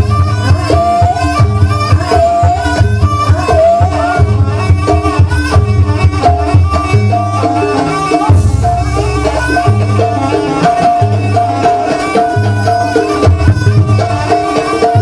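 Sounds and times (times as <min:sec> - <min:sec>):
hand drumming: 0:00.0 - 0:15.0
repeating ensemble melody: 0:00.0 - 0:15.0
deep booming beat: 0:08.2 - 0:10.1.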